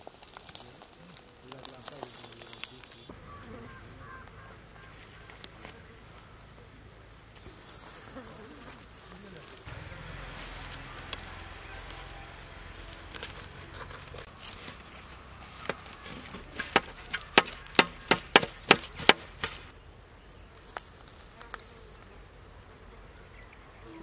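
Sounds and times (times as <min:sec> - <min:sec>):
insects buzzing: 0:02.0 - 0:19.8
knife chopping dried fish: 0:13.2 - 0:19.7.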